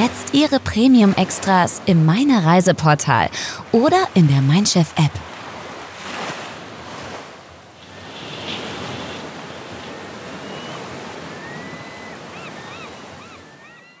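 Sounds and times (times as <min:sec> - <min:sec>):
sea waves washing: 0:00.0 - 0:13.7
faint high chirping calls: 0:09.7 - 0:14.0.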